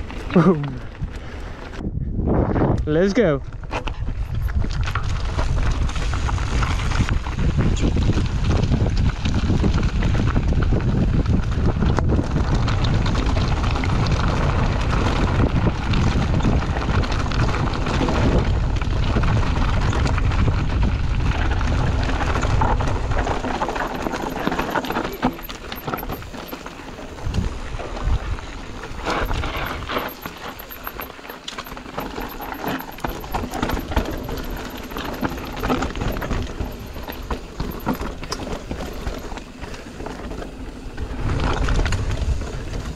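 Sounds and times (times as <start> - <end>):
bike rattling over stones: 0.0 - 1.8, 3.6 - 42.9
wind on microphone: 0.8 - 31.2.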